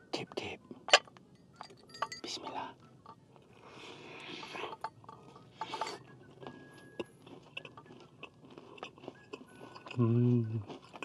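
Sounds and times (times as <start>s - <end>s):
cutlery clinking against dishes: 0.9s - 2.4s, 4.4s - 6.6s
eating sounds: 3.4s - 11.0s.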